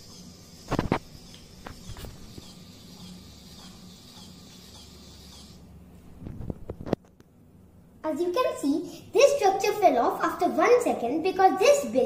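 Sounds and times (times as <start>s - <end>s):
shaking platform rattling hiss: 0.0s - 5.6s.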